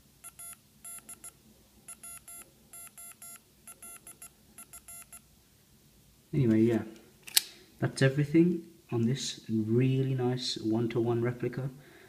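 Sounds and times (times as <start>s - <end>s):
electronic morse code beeps: 0.2s - 5.2s.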